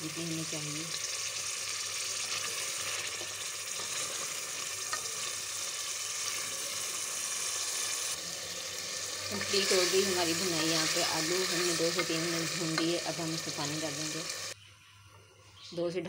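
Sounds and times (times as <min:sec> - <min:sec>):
food sizzling in a metal pot: 0:00.0 - 0:14.6
spoon stirring in a pot: 0:02.2 - 0:05.4.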